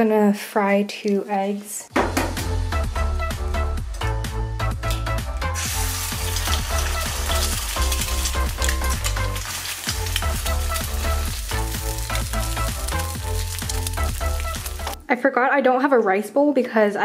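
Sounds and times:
background music with a beat: 1.9s - 9.4s
eggs sizzling in a pan: 5.6s - 15.0s.

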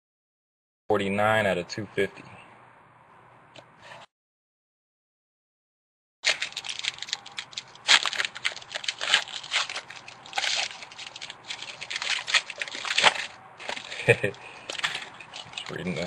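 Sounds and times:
foil wrapper crinkling and tearing: 6.2s - 16.0s.

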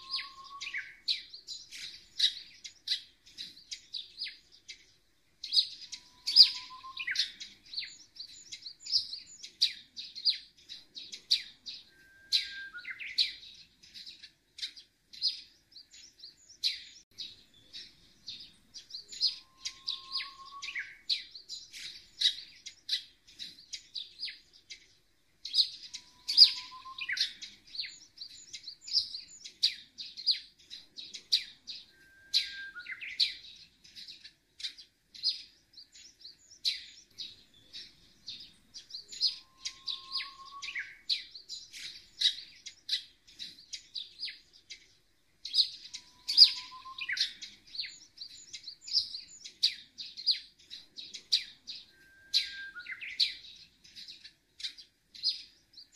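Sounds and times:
small birds chirping: 0.0s - 55.9s.

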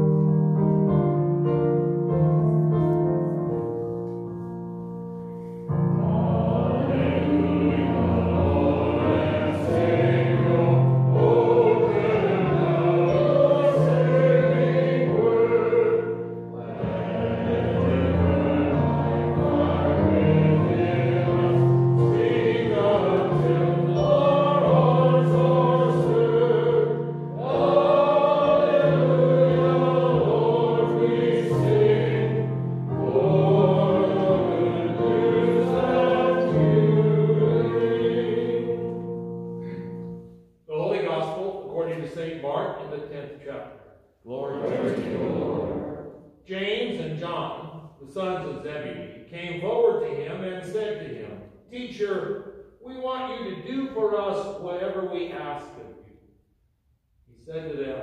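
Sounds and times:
electronic keyboard accompaniment: 0.0s - 40.5s
voices singing slowly: 5.4s - 43.6s, 44.2s - 56.1s.

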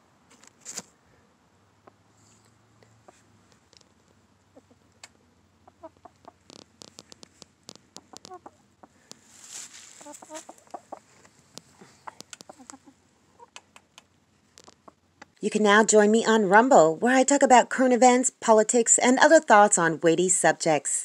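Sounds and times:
brief rustle: 0.3s - 1.0s, 9.1s - 10.5s
chickens clucking: 2.9s - 15.4s
small clicks: 6.2s - 8.4s.

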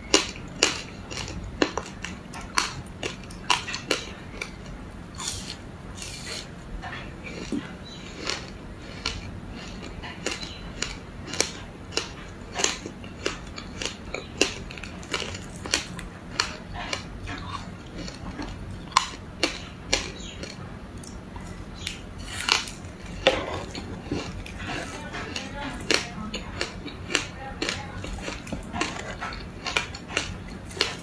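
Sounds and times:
crisp crunches of chewing ice: 5.2s - 6.5s, 7.3s - 20.6s, 21.4s - 31.0s.

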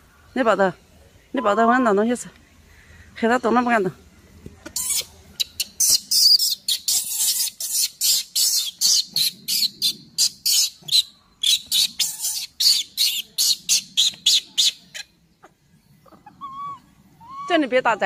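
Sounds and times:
baby monkey screaming: 4.8s - 15.1s, 16.1s - 18.0s.

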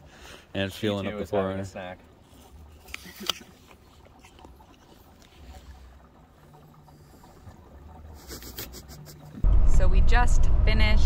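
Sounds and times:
gasoline gurgling from a can: 1.7s - 9.4s
low rumble: 9.4s - 11.0s.

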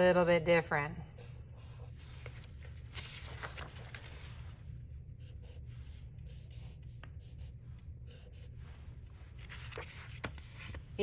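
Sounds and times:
marker scratching on paper: 0.0s - 2.7s, 5.2s - 10.8s.

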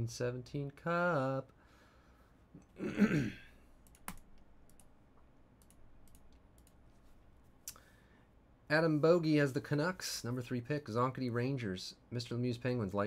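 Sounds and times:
light typing on computer keyboard: 3.8s - 5.0s, 5.6s - 6.8s.

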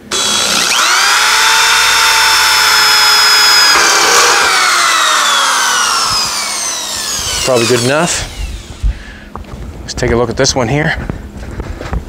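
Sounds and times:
power drill drilling into metal: 0.0s - 9.0s.

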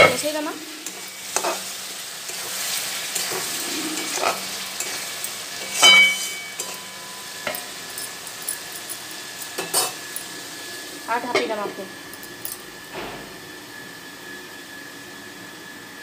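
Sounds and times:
spices sizzling in a pan: 0.0s - 12.9s
metal spatula scraping pan: 2.3s - 7.7s
spatula clinking on pan: 4.8s - 10.3s.

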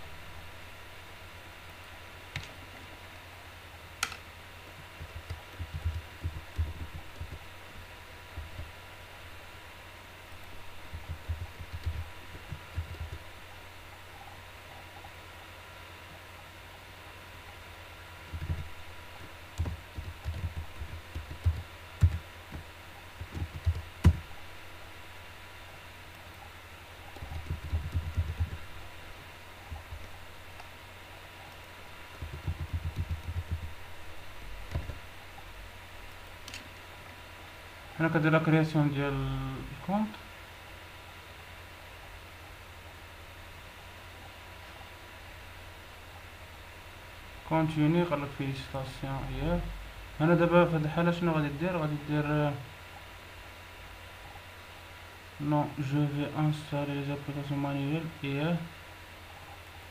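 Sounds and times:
steady low hum: 0.0s - 59.9s
typing on keyboard: 5.0s - 7.4s, 10.9s - 13.2s, 19.6s - 22.2s, 23.2s - 24.2s, 27.2s - 28.6s, 32.1s - 33.7s.

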